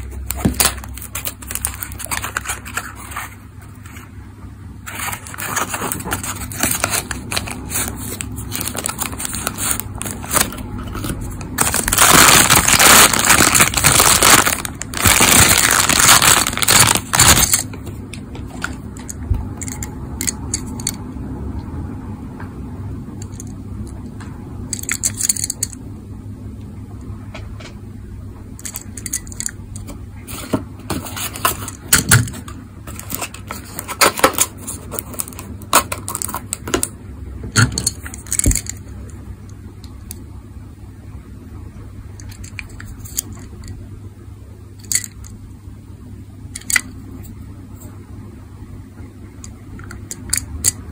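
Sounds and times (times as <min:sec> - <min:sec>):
cardboard box rustling and crinkling: 0:00.3 - 0:04.0, 0:04.8 - 0:17.7.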